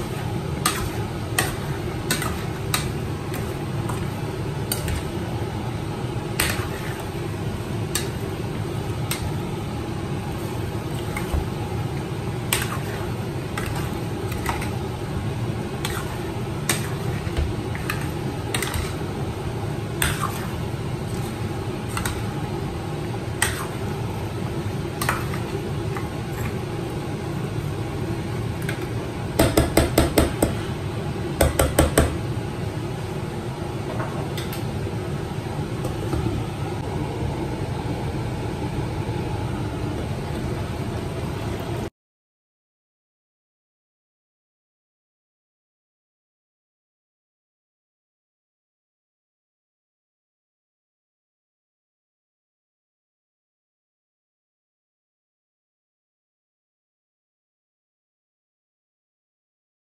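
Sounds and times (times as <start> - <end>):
spoon stirring food in pot: 0.0 - 9.6, 10.3 - 14.9, 15.7 - 19.2.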